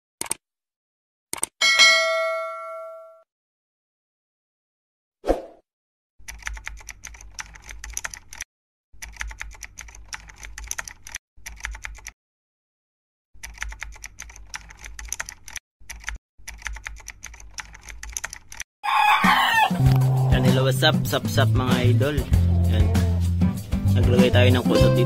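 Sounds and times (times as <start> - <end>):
computer keyboard typing: 6.2 - 12.2, 13.4 - 18.6.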